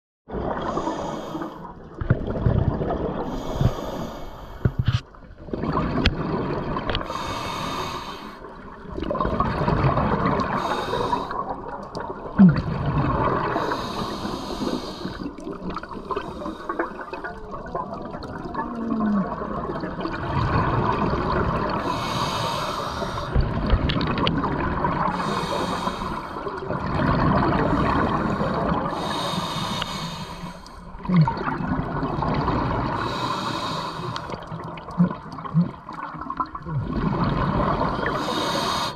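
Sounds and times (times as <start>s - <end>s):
exhaled air bubbling: 0.3s - 38.9s
regulator hissing inhales: 3.3s - 4.8s, 7.0s - 8.4s, 13.6s - 15.3s, 21.8s - 23.3s, 25.2s - 26.5s, 29.0s - 30.8s, 33.0s - 34.3s, 38.2s - 38.9s.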